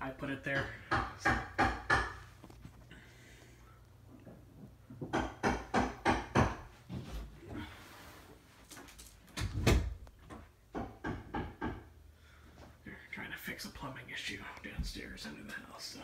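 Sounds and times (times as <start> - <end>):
sharp knocks: 0.5 - 2.2, 4.9 - 6.7.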